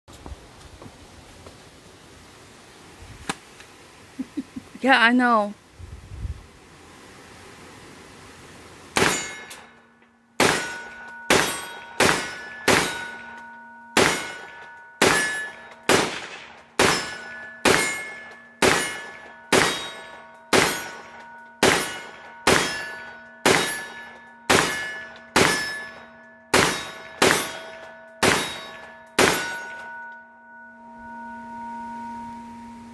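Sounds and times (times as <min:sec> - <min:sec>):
rifle shots: 0:09.0 - 0:09.5, 0:10.4 - 0:13.3, 0:14.0 - 0:25.8, 0:26.5 - 0:29.9
steel targets clanging: 0:09.0 - 0:31.5.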